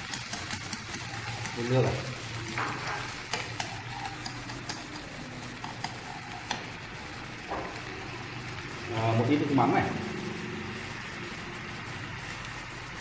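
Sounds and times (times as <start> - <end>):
chopsticks scraping a frying pan: 0.0 - 8.8
sauce sizzling: 0.0 - 13.0.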